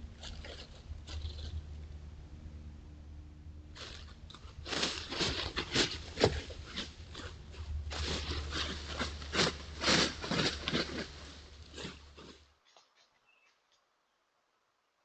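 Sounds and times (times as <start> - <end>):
dry leaves rustling and crunching: 0.0 - 1.8, 3.7 - 12.5
low hum: 0.0 - 12.5.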